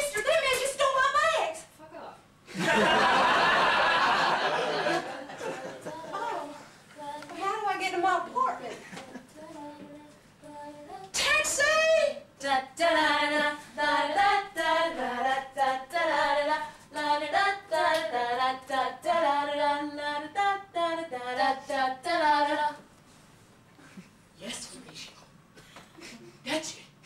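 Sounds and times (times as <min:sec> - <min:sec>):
woman singing unaccompanied: 0:05.5 - 0:22.8.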